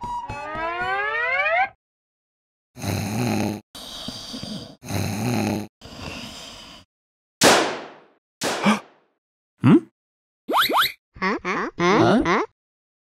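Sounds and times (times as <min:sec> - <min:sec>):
cartoon snoring: 0:02.8 - 0:06.9, 0:09.6 - 0:09.9.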